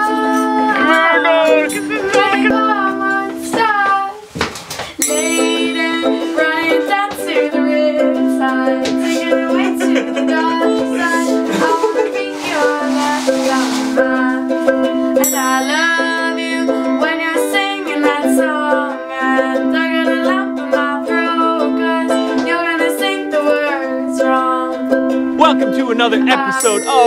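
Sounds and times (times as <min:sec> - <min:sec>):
ukulele strummed in chords: 0:00.0 - 0:04.0, 0:05.0 - 0:27.0
girl singing: 0:00.0 - 0:04.3, 0:04.9 - 0:27.0
triangle ringing: 0:05.0 - 0:06.7, 0:15.2 - 0:17.3, 0:26.5 - 0:27.0.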